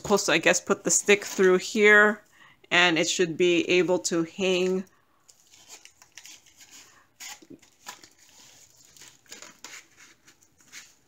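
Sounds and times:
fabric and plastic rustling: 4.6 - 11.0.

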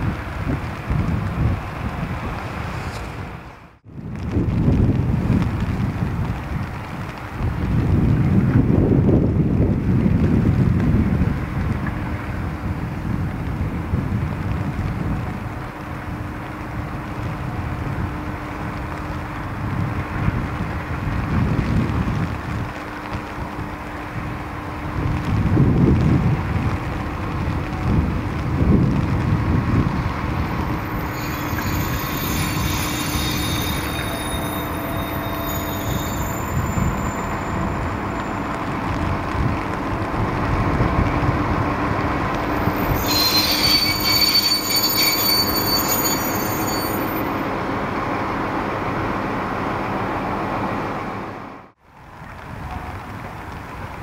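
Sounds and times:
freight train engine rumble: 0.0 - 54.0
metal wheels squealing on rails: 30.4 - 38.9, 42.4 - 47.5.

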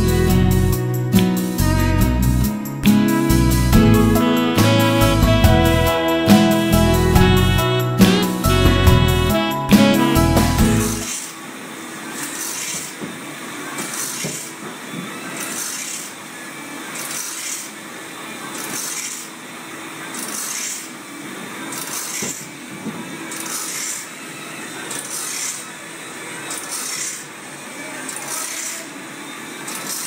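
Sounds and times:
grinding wheel rasping hiss: 23.2 - 30.0.

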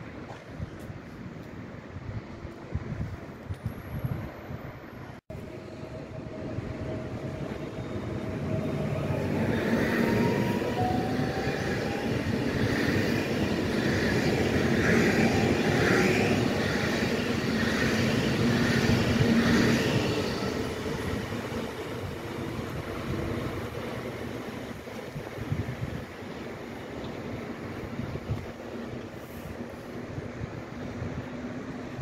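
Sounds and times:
train rail and wheel noise: 0.0 - 32.0.

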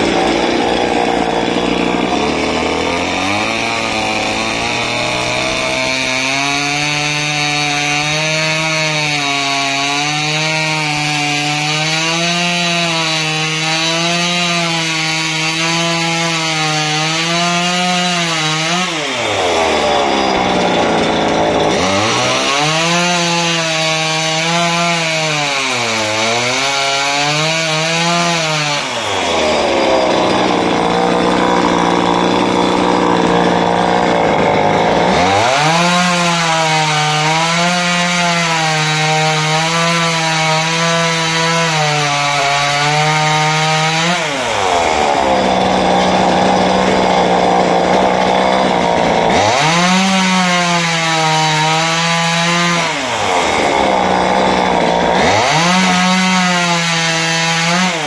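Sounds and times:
chainsaw cutting wood: 0.0 - 58.0.

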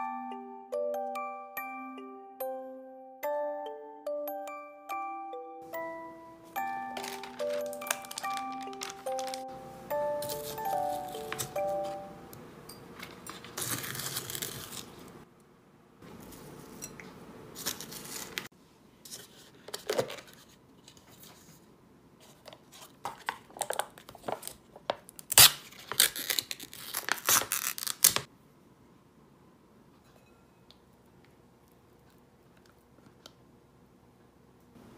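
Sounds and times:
plastic lid and foil crinkling: 6.6 - 9.6, 10.2 - 12.0, 13.0 - 15.2, 17.6 - 18.5, 22.2 - 28.3
film seal tearing: 13.3 - 15.0, 25.2 - 28.3.

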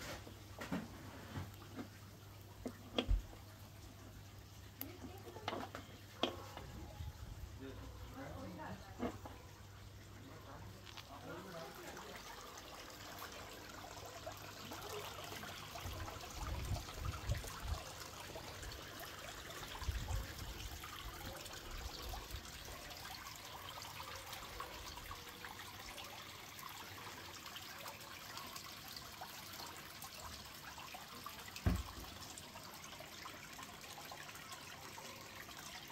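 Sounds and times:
water splashing into pond: 10.8 - 35.9.

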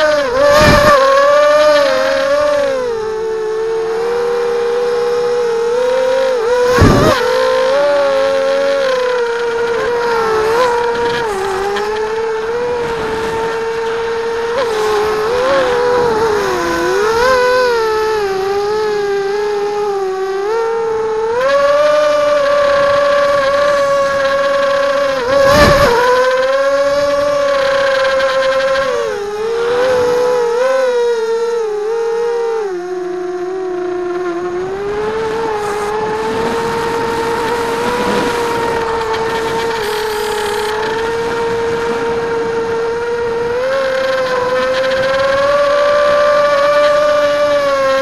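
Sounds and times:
quadcopter motors whining: 0.0 - 48.0
wind rush: 6.6 - 19.0, 21.6 - 31.0, 34.5 - 48.0.

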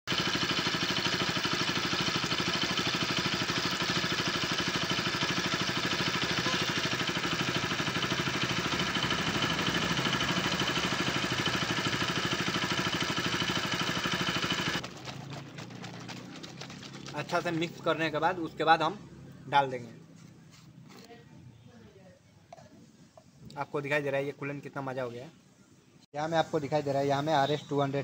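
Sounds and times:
motorcycle engine idling: 0.1 - 17.8.

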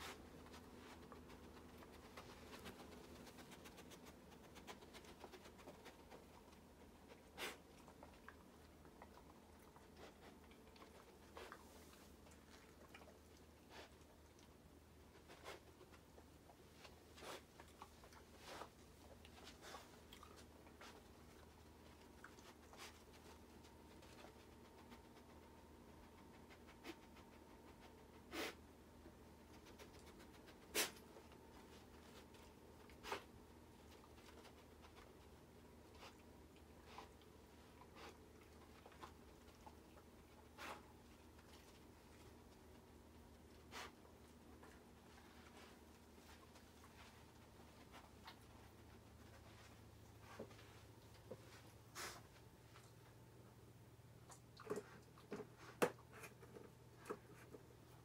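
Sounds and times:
dog sniffing: 0.0 - 28.8, 29.4 - 42.7, 43.4 - 50.5, 51.9 - 52.4.

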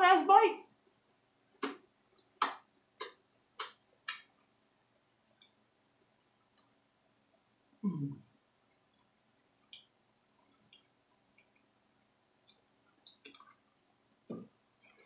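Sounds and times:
wet finger-licking and lip smacks: 1.6 - 1.8, 2.4 - 4.3.

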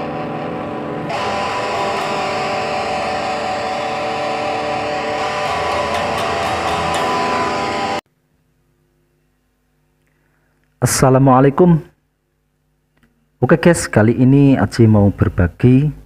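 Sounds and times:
electric guitar sustained notes: 0.0 - 8.0.

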